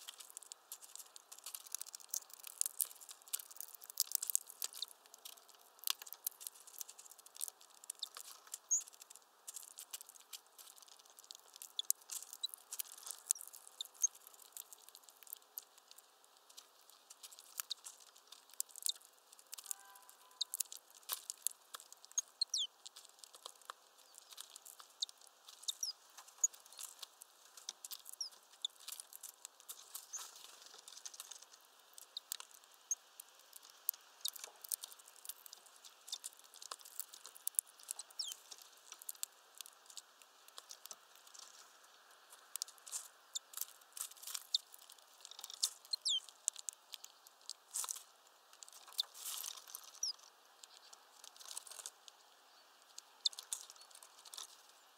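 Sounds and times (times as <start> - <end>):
songbirds chirping: 0.0 - 47.9, 48.8 - 54.9.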